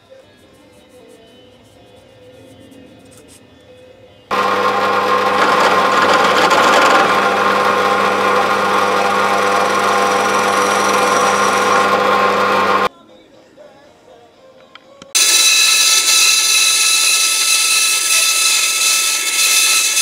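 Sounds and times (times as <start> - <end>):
drill bit cutting sheet metal: 4.3 - 12.9, 15.2 - 20.0
drill press motor hum: 4.3 - 12.9.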